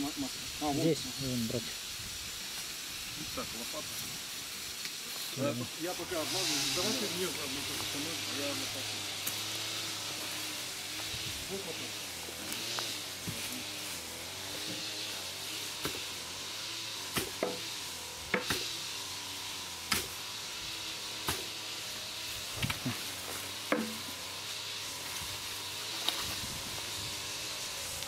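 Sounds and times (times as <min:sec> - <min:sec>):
steady hiss: 0:00.0 - 0:28.0
shovel digging into soil: 0:19.8 - 0:20.2.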